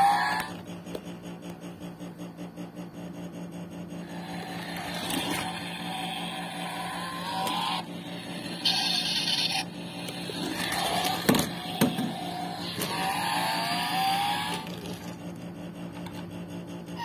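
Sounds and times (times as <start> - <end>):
toy car whirring whine: 0.0 - 0.6, 4.0 - 15.4.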